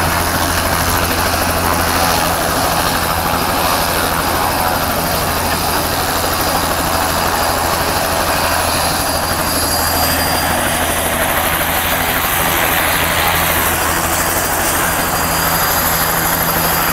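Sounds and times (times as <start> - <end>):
helicopter rotor beat: 0.0 - 16.9
turbine whine: 0.0 - 16.9.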